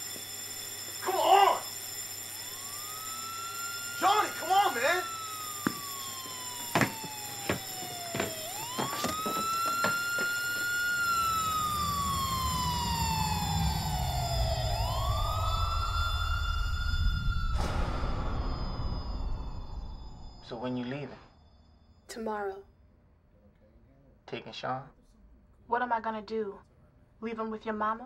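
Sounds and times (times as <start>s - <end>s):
siren wailing: 0.0s - 21.3s
sharp knocks: 6.7s - 10.3s
low rumble: 11.8s - 20.7s.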